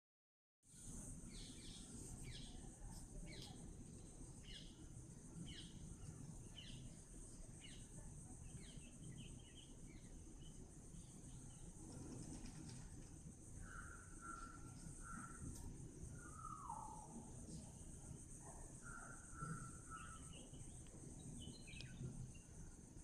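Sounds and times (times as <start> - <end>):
high-pitched hiss: 0.7 - 23.0.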